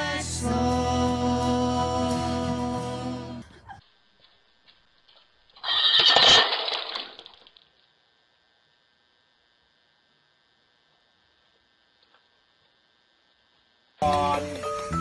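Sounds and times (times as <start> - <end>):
faint electrical whine: 2.4 - 15.0
crash of something shattering: 5.6 - 7.2.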